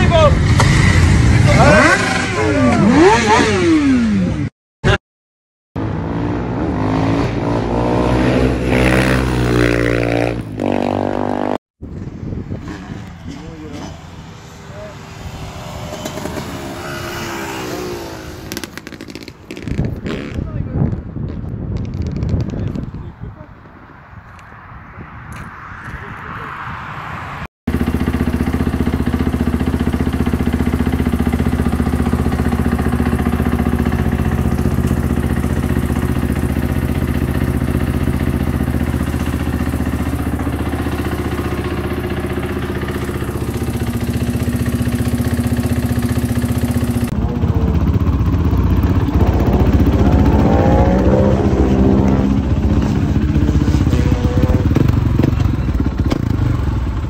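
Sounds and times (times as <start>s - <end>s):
motorcycle revving: 0.0s - 5.0s, 5.8s - 22.9s, 25.3s - 57.0s
motorcycle engine idling: 27.7s - 51.1s, 52.2s - 57.0s.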